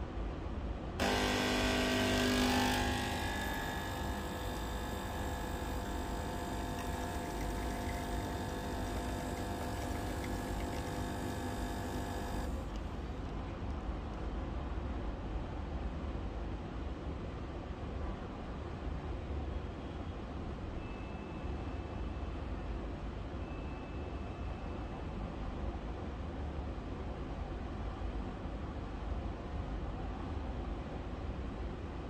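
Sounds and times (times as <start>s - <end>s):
espresso machine pump buzzing: 1.0s - 12.7s.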